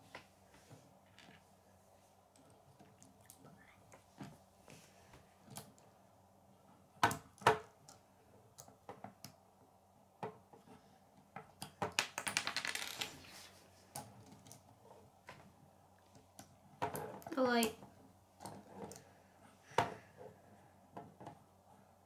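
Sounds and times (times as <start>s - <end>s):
plastic pieces clicking: 11.6s - 13.1s.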